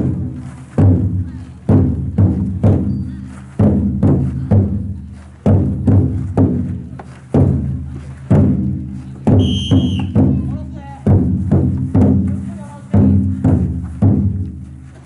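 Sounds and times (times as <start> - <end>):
large taiko drum booms: 0.0 - 14.9
short high whistle: 9.4 - 10.2.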